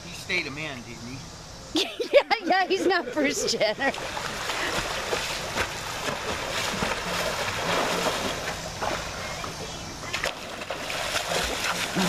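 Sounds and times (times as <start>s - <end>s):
water splashing from swimming: 3.8s - 12.0s.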